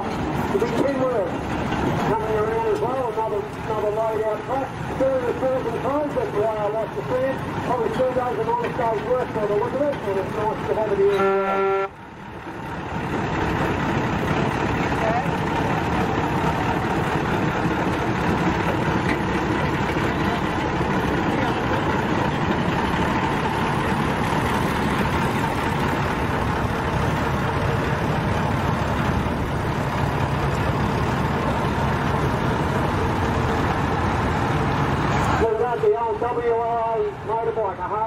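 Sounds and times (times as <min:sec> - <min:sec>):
diesel trucks rolling by: 0:00.0 - 0:38.0.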